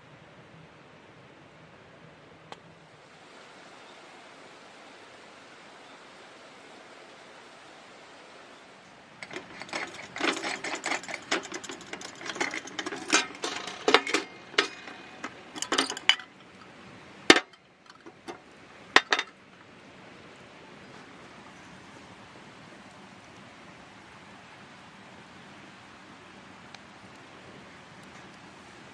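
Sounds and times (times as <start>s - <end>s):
glass and metal lamp parts clinking: 9.2s - 16.7s, 17.3s - 19.4s.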